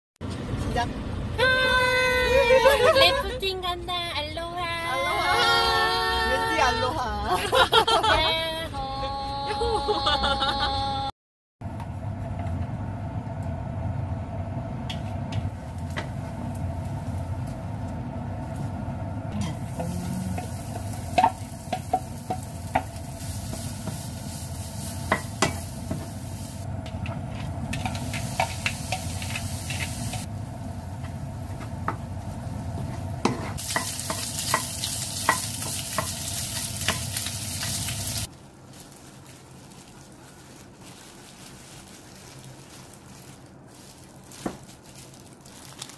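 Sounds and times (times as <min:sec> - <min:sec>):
food sizzling in hot oil: 0:19.3 - 0:26.7, 0:27.6 - 0:38.3
utensils tapping against a pan: 0:33.2 - 0:37.9.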